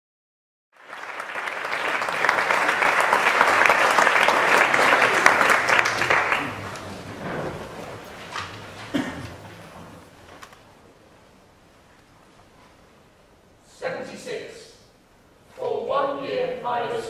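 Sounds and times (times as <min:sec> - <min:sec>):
audience applauding: 0:00.7 - 0:10.2.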